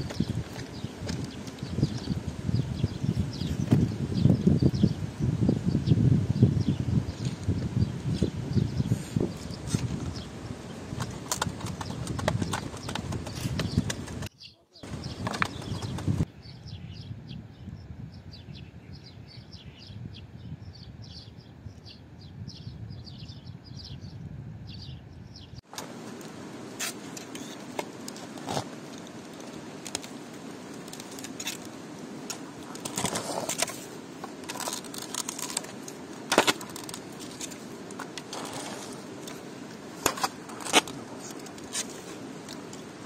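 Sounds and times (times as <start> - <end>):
birds chirping: 0.0 - 42.7
low wind rumble: 0.0 - 43.0
shovel scraping soil and stones: 25.7 - 42.9.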